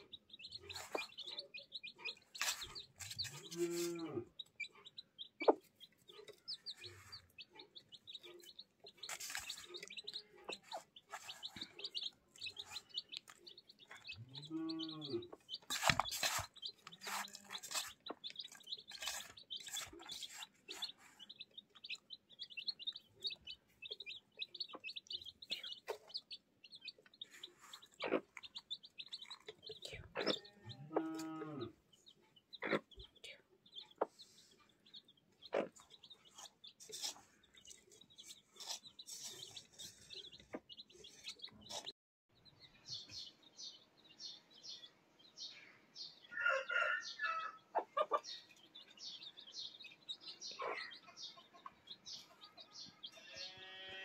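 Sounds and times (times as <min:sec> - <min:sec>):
chicks peeping: 0:00.0 - 0:54.0.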